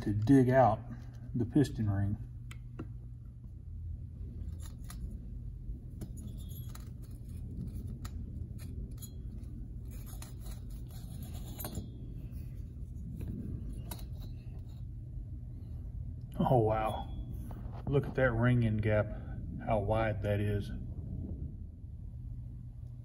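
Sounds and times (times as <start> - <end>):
steady low hum: 0.0 - 23.0
metallic clicks and scrapes: 4.2 - 16.0.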